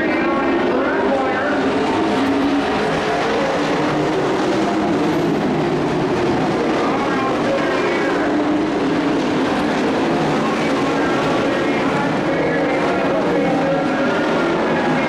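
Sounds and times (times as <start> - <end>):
race truck engines roaring: 0.0 - 15.0.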